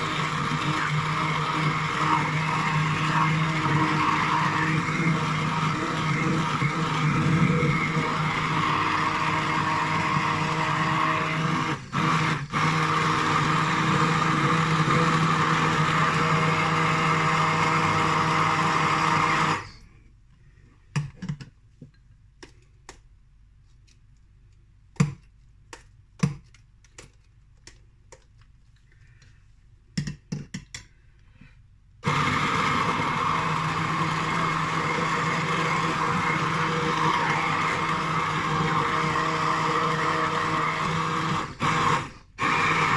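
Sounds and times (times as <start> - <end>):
stick blender running: 0.0 - 19.8, 32.0 - 42.9.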